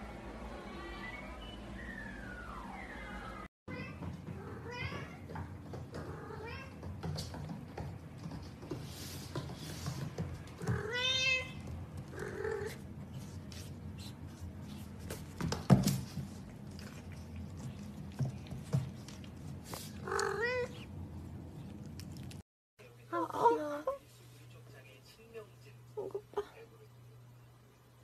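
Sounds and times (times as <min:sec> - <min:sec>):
cat meowing: 0:20.0 - 0:20.8.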